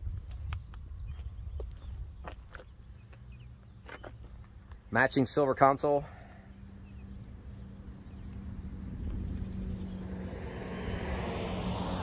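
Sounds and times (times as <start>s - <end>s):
vehicle engine droning: 6.1s - 12.0s.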